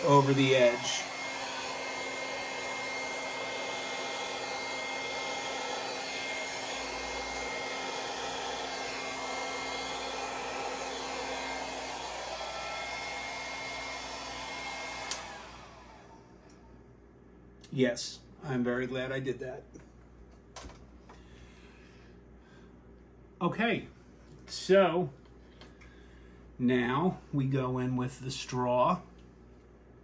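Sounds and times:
motor whining down: 0.0 - 16.2
electric blower running: 0.0 - 16.3.

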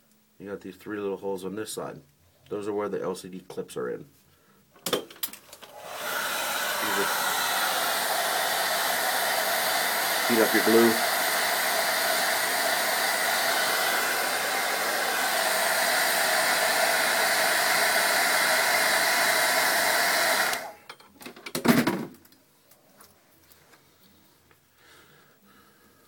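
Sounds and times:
hair dryer blowing: 5.6 - 20.8.

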